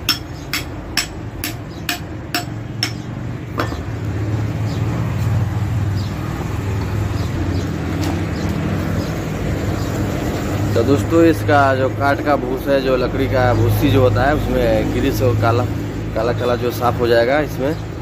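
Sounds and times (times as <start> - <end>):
metallic taps on axle hub: 0.0 - 4.0.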